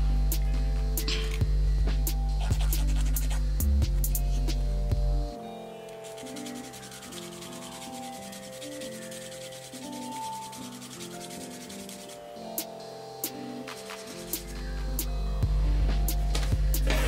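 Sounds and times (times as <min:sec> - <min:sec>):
music playing: 0:00.0 - 0:17.0
nail file rasping: 0:02.4 - 0:04.6, 0:05.9 - 0:12.2.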